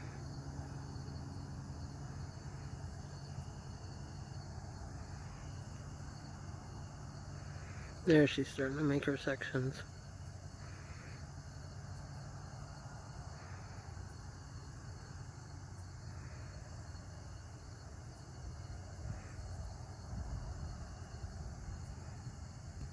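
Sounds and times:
crickets chirping: 0:00.0 - 0:22.9.

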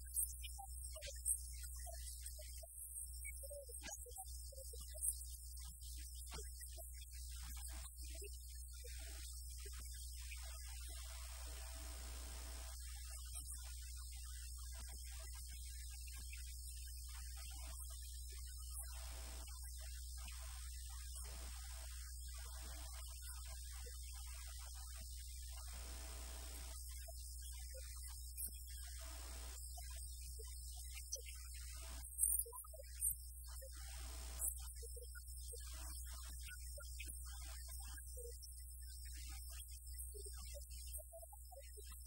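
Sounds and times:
electrical mains hum: 0:11.1 - 0:12.7, 0:25.6 - 0:26.7
faint high hiss: 0:11.2 - 0:12.8, 0:25.7 - 0:26.7.

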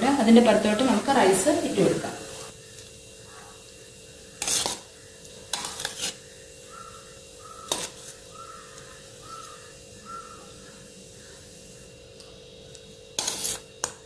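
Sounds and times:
metal spoon scraping rice: 0:04.4 - 0:06.3, 0:07.6 - 0:09.6, 0:13.1 - 0:14.0.

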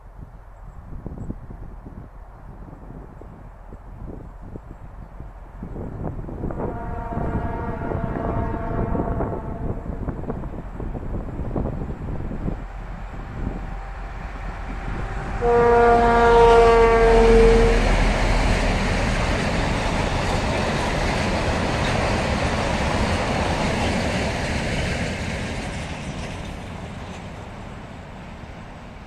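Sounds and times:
locomotive horn: 0:06.4 - 0:10.2, 0:12.6 - 0:18.3.

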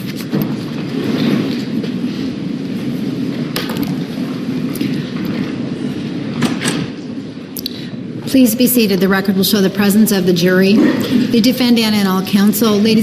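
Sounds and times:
people shuffling and rustling: 0:00.0 - 0:13.0.

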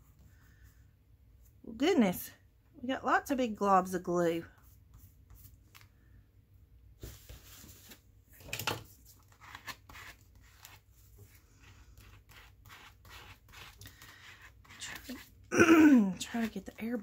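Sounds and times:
paper rustling and rubbing: 0:07.0 - 0:08.1.

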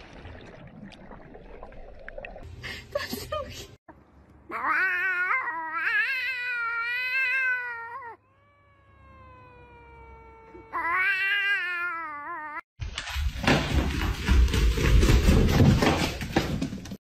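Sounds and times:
cat yowling: 0:04.5 - 0:12.6.

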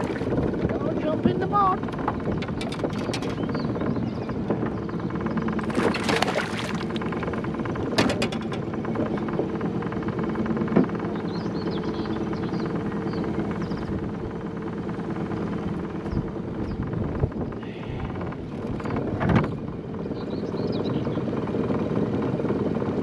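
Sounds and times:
small boat motor running: 0:00.0 - 0:23.0
fish splashing: 0:05.6 - 0:07.2.

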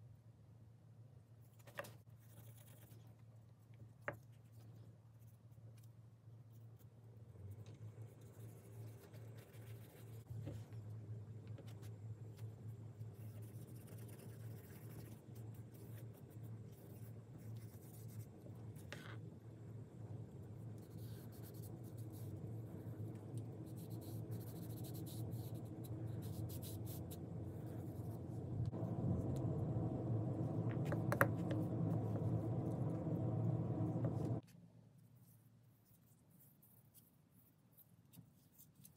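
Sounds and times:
steady low hum: 0:00.0 - 0:36.5
cotton swab rubbing and scratching: 0:07.9 - 0:10.8, 0:11.5 - 0:19.2, 0:20.4 - 0:29.2, 0:34.0 - 0:38.9.

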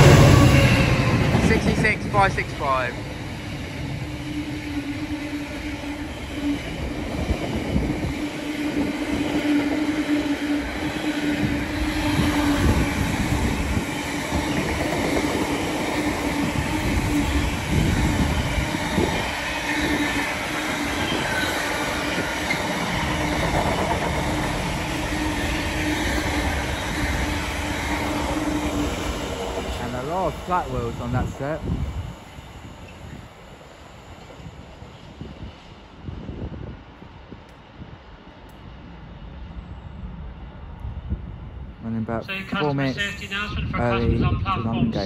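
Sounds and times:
locomotive drone: 0:00.0 - 0:43.8
train wheels clattering on rails: 0:11.3 - 0:27.7.

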